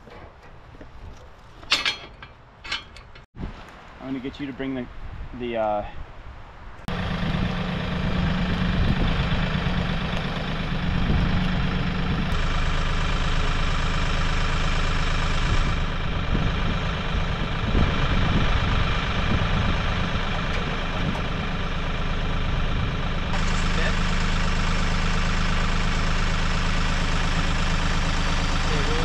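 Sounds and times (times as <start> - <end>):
tractor engine idling: 6.9 - 29.0.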